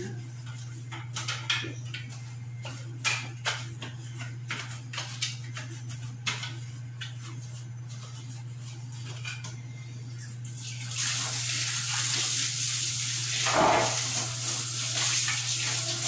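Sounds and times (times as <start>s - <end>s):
steady low hum: 0.0s - 10.6s.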